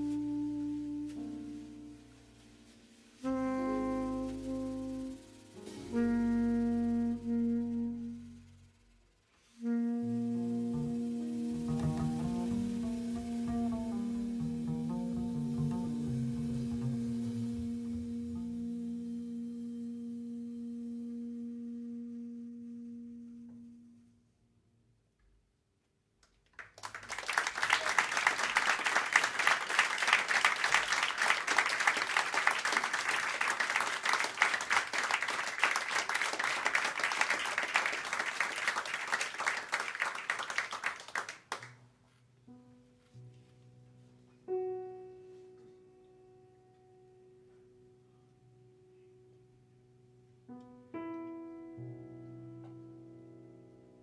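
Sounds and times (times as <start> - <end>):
slow piano chords: 0.0 - 9.0, 10.4 - 21.6, 42.4 - 54.0
audience applauding: 26.5 - 41.8.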